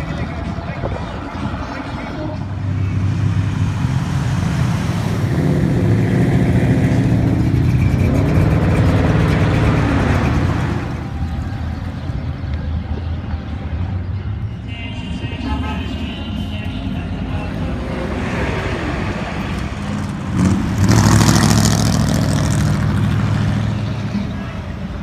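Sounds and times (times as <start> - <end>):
cars driving away: 0.0 - 25.0
pickup truck engine accelerating: 2.5 - 13.4, 17.7 - 25.0.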